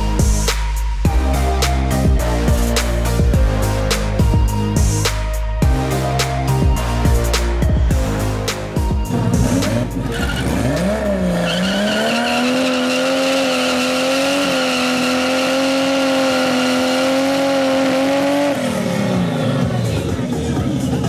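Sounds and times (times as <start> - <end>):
car engine revving: 0.0 - 21.0.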